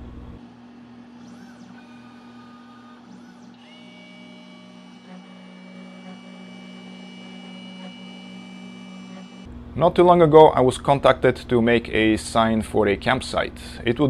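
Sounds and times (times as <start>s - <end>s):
stepper motors whining: 0.0s - 9.5s
low machine hum: 0.0s - 14.0s.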